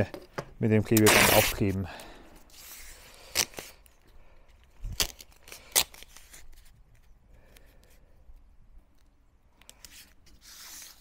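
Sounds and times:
tape clicks and crackles: 0:00.1 - 0:11.0
tape tearing off roll: 0:01.0 - 0:01.8, 0:02.5 - 0:03.9, 0:04.9 - 0:06.7.

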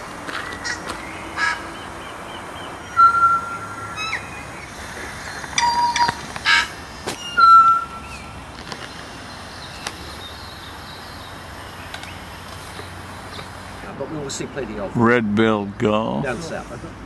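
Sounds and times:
bird whistling: 0:00.4 - 0:08.4
sharp bird clicks: 0:09.6 - 0:10.3, 0:11.8 - 0:13.6.

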